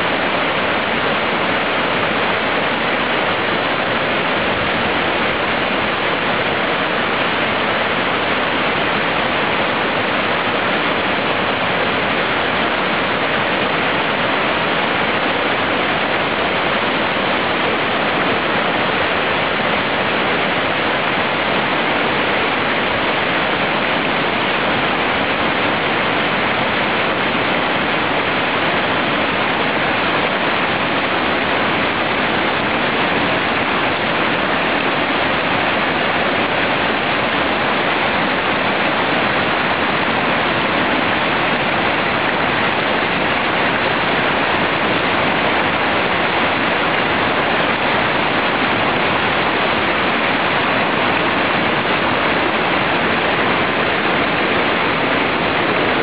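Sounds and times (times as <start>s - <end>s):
waterfall rushing: 0.0s - 56.0s.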